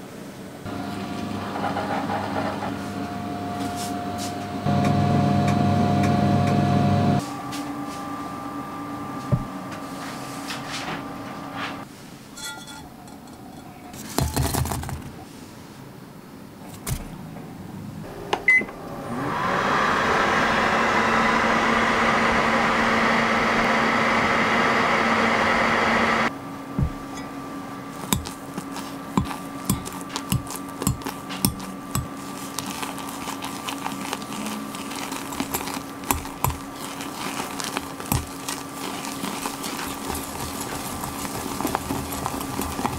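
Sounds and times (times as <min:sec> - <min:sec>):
microwave oven running: 0:00.7 - 0:11.8, 0:18.0 - 0:42.9
whisk tapping glass jug: 0:28.0 - 0:32.4, 0:35.1 - 0:41.7.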